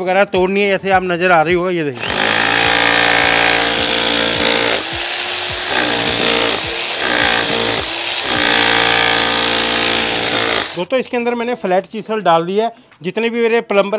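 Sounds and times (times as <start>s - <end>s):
rotary hammer chipping concrete: 2.0s - 10.8s.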